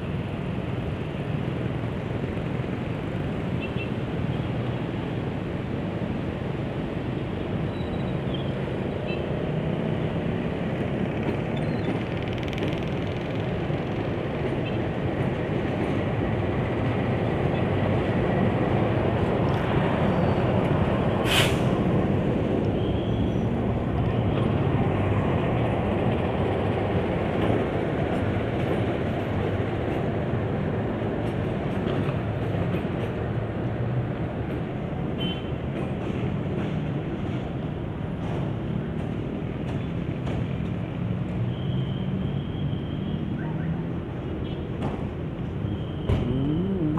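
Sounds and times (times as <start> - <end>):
diesel locomotive engine: 4.8 - 43.0.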